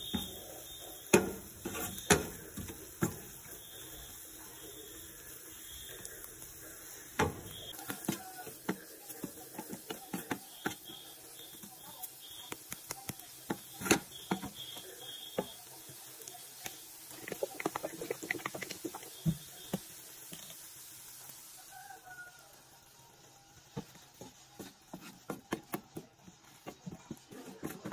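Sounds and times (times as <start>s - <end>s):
low sizzle of frying: 0.0s - 27.9s
wooden spatula scraping frying pan: 1.1s - 3.3s.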